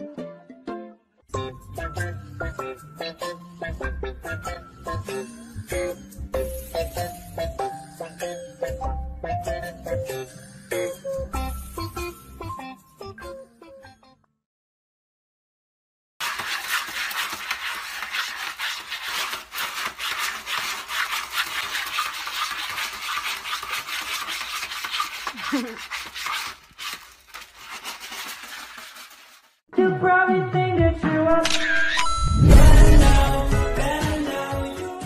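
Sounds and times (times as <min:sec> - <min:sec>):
cat scratching in pellet litter: 0:16.2 - 0:29.6.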